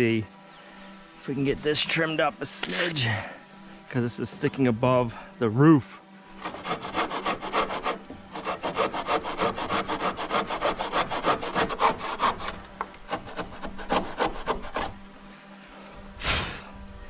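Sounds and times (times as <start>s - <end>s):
handsaw cutting wood: 2.5s - 3.3s, 6.3s - 15.0s.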